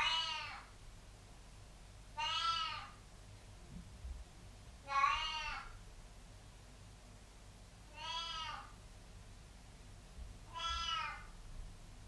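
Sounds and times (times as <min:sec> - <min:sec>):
cat meowing: 0:00.0 - 0:00.7, 0:02.2 - 0:03.0, 0:04.8 - 0:05.8, 0:07.9 - 0:08.7, 0:10.5 - 0:11.4.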